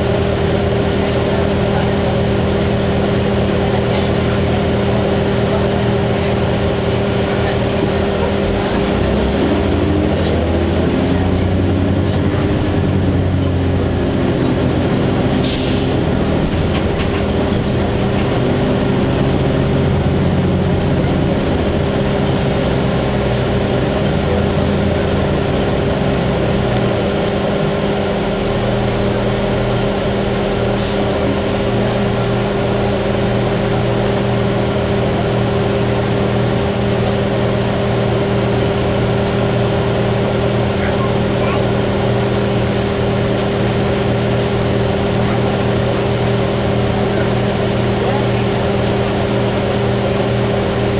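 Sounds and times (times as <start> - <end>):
bus diesel engine running: 0.0 - 50.9
short air hisses: 15.3 - 16.0.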